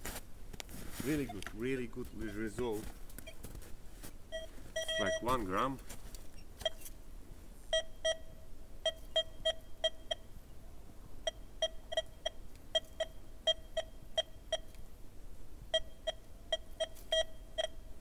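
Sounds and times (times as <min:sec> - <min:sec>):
metal detector beeps: 0:01.1 - 0:01.5, 0:04.3 - 0:05.6, 0:06.4 - 0:06.9, 0:07.7 - 0:10.3, 0:11.3 - 0:14.7, 0:15.7 - 0:17.9.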